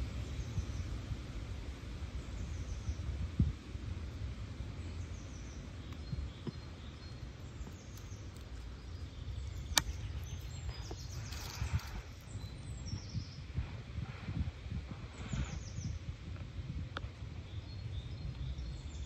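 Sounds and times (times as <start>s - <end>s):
steady low rumble: 0.0s - 19.0s
birds chirping: 4.7s - 14.3s, 14.9s - 16.2s, 17.0s - 19.0s.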